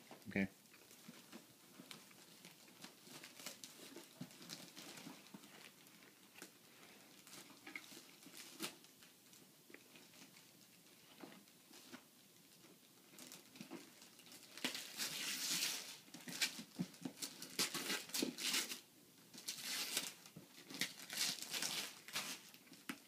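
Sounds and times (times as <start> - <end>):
wrapping paper crinkling and tearing: 0.8 - 9.1, 13.0 - 23.0.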